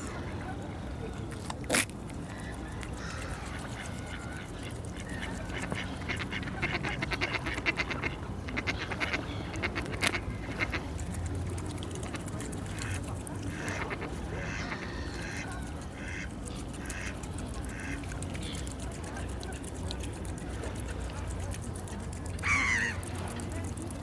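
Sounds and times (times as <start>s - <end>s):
bill clicking in water: 1.2s - 24.0s
nasal quack-like calls: 3.0s - 10.9s, 12.0s - 18.1s, 22.4s - 23.1s.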